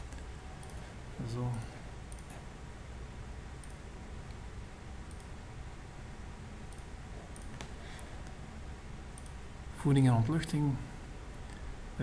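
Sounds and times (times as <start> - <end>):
computer mouse clicks: 0.0 - 0.8, 1.5 - 2.4, 3.6 - 4.4, 5.0 - 5.4, 6.7 - 8.4, 9.1 - 9.4
low room noise: 0.0 - 12.0.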